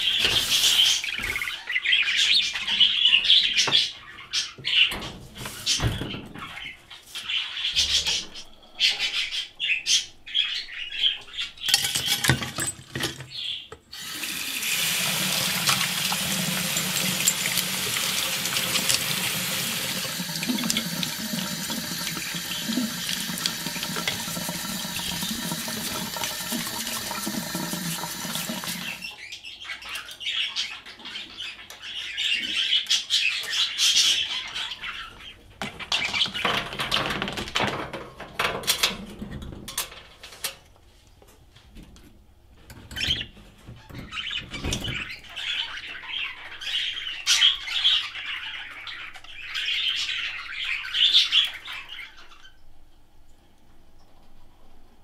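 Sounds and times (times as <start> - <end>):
tap water running into sink: 13.9 - 29.1.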